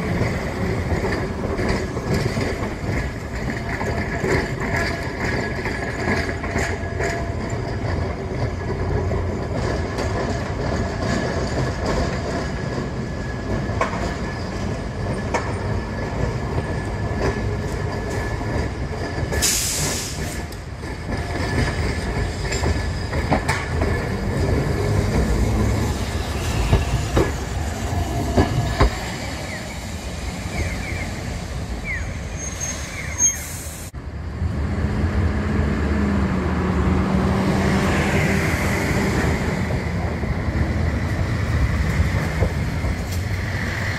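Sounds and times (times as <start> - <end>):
streetcar rumble on rails: 0.0 - 43.9
wheel squeal: 21.4 - 33.9.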